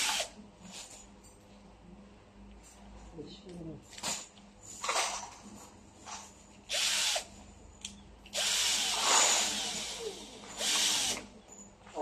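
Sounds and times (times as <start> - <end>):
cordless drill driving a screw: 0.0 - 0.3, 6.7 - 7.3, 8.3 - 11.3.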